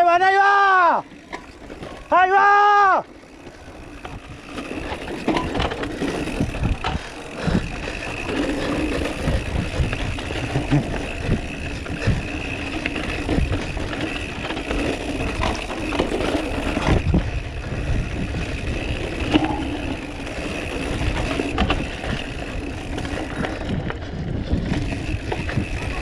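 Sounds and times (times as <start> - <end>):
bike knocking and rattling: 0.0 - 26.0
wind on microphone: 5.5 - 12.4, 16.7 - 20.2, 20.8 - 26.0.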